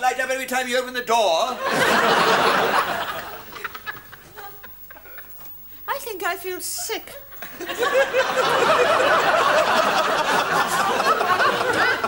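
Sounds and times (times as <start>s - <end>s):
audience laughing: 1.6s - 5.4s, 7.4s - 12.0s.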